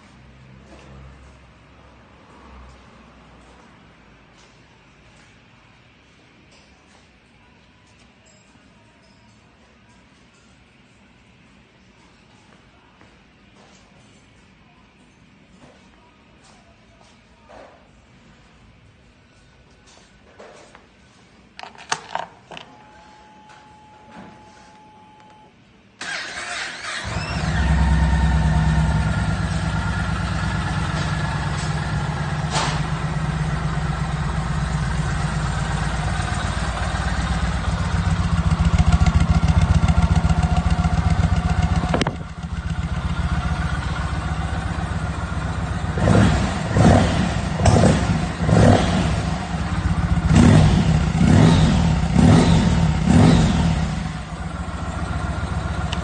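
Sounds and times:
motorcycle starter cranking: 0:26.0 - 0:28.2
motorcycle engine idling: 0:27.1 - 0:56.0.

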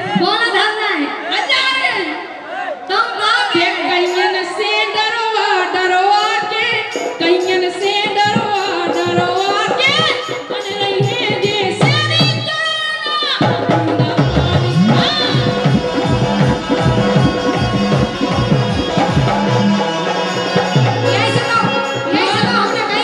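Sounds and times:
hand drum rhythm: 0:06.7 - 0:12.5, 0:13.3 - 0:23.0
man singing through pa: 0:14.0 - 0:21.1.

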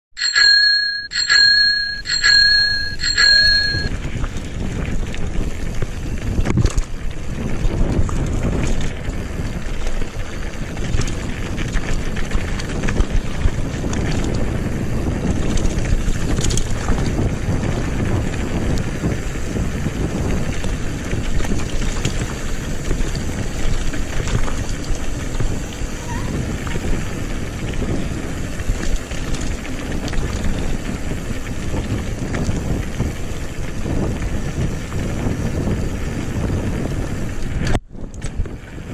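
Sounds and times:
bicycle bell ringing: 0:00.2 - 0:04.0
bike tyres rolling over gravel: 0:03.0 - 0:38.9.

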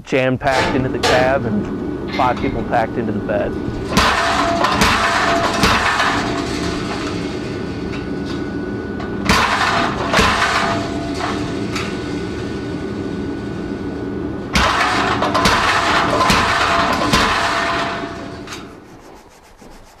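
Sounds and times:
power hammer striking hot metal: 0:00.5 - 0:02.8, 0:03.9 - 0:07.4, 0:14.5 - 0:18.8.

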